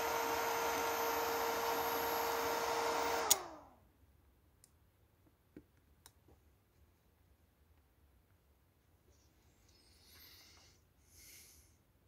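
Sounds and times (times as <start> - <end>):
cooling fan whirring: 0.0 - 3.8.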